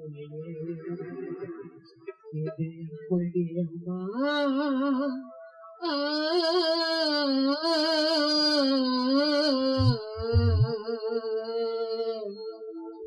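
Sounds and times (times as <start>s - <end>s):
man singing long wavering note: 3.4s - 13.0s
low thumps: 9.8s - 10.7s.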